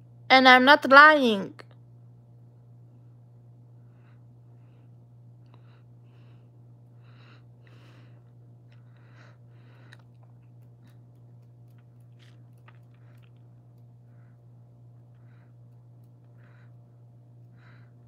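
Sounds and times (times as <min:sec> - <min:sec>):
steady low hum: 0:00.0 - 0:18.0
soft breaths: 0:03.0 - 0:11.2, 0:12.2 - 0:18.0.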